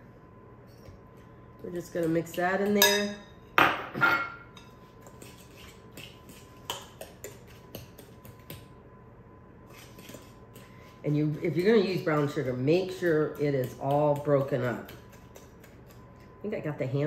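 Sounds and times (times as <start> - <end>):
fork scraping glass bowl: 4.6 - 6.8.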